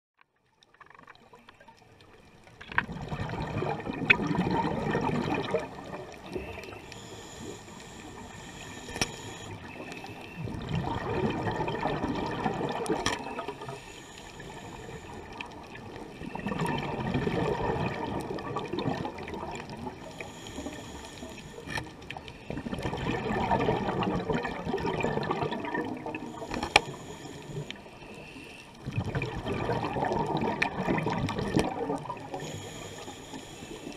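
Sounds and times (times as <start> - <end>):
exhaled bubbles from regulator: 2.8 - 33.9
inhalation hiss: 6.3 - 10.3, 13.6 - 15.3, 20.0 - 21.7, 26.2 - 28.7, 32.3 - 33.9
fish crunching coral clicks: 8.7 - 11.0, 11.6 - 13.8, 21.3 - 25.5, 26.2 - 28.2, 28.8 - 32.2.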